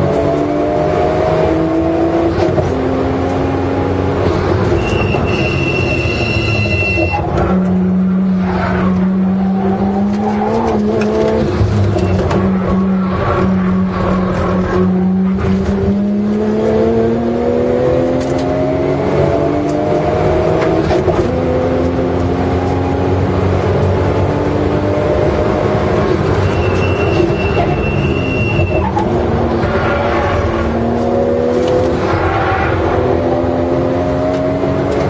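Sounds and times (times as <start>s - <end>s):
car engine revving: 0.0s - 35.0s
brakes squealing: 4.2s - 15.9s, 26.0s - 33.2s.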